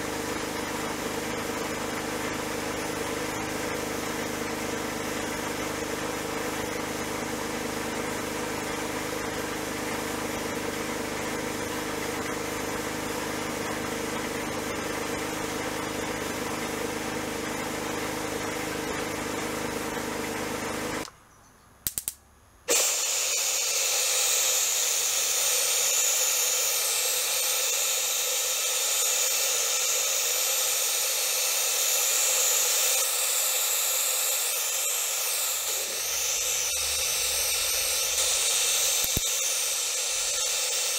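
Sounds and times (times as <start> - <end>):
machine hum: 22.2 - 40.9
sandblaster hissing: 22.7 - 40.9
spray gun hissing: 22.7 - 40.9
clicks: 37.2 - 39.4.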